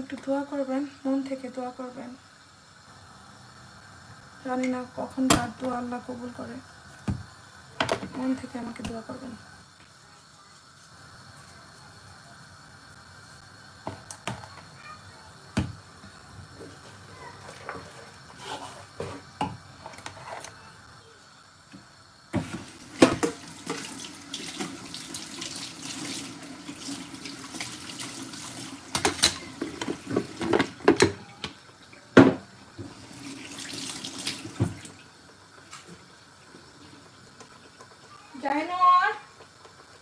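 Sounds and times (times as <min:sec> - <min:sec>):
tap running into a sink: 0:07.0 - 0:08.2, 0:21.7 - 0:26.2, 0:26.8 - 0:31.6, 0:32.2 - 0:35.0.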